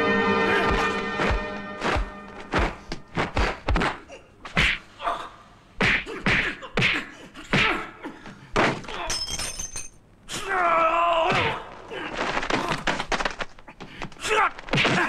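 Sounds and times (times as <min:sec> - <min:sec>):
punch and kick impacts: 0:00.7 - 0:04.0, 0:14.6 - 0:15.0.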